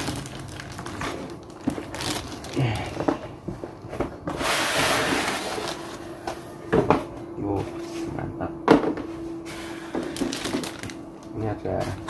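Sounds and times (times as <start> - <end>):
box scraping as lifted: 4.3 - 6.0.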